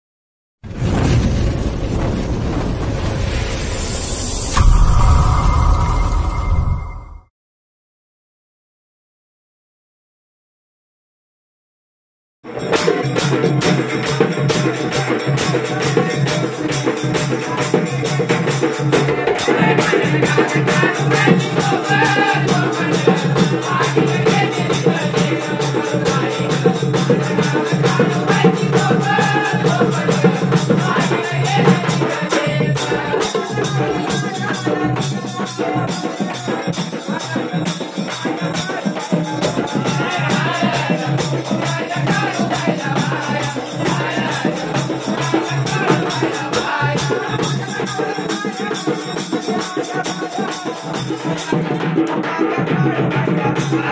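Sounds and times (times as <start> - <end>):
group singing devotional song: 12.5 - 53.9.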